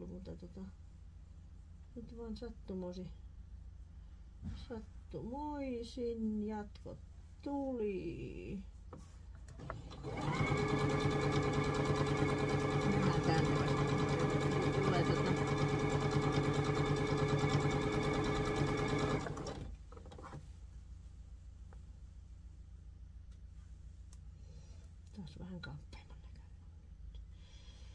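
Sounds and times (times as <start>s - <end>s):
sewing machine stitching: 9.5s - 20.4s.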